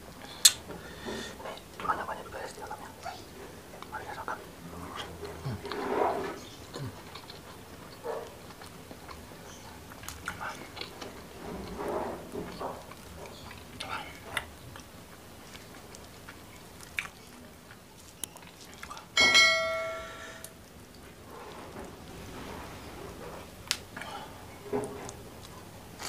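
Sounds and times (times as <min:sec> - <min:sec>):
chewing: 0:02.5 - 0:19.2
notification bell ding: 0:19.2 - 0:20.2.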